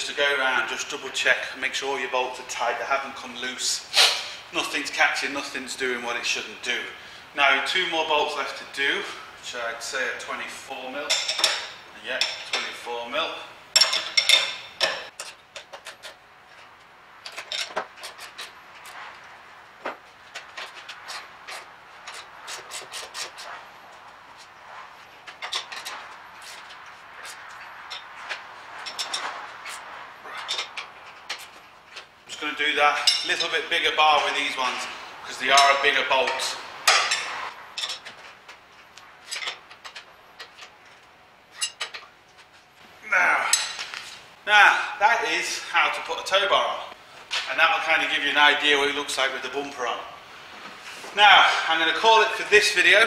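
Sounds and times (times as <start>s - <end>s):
hand tools clicking and knocking: 11.1s - 12.7s, 13.8s - 24.5s, 25.2s - 32.2s, 32.9s - 33.6s, 35.4s - 42.5s.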